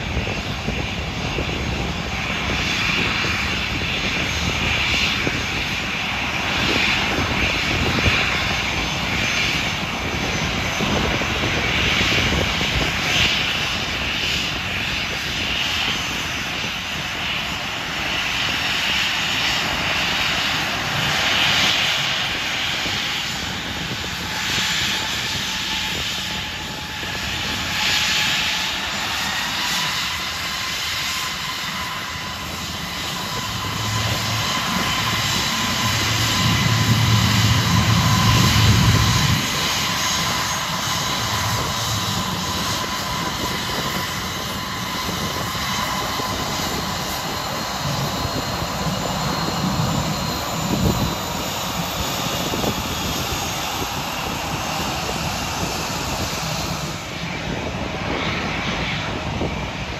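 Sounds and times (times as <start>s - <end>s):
jet engines whining: 0.0s - 59.9s
low rumble: 32.1s - 44.4s.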